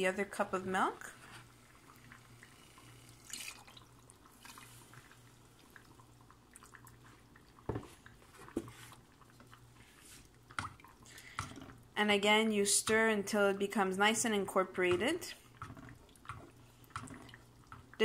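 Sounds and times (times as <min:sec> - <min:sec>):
soft wet stirring: 0:00.9 - 0:12.0, 0:12.8 - 0:18.0
milk pouring: 0:01.1 - 0:12.0, 0:15.4 - 0:18.0.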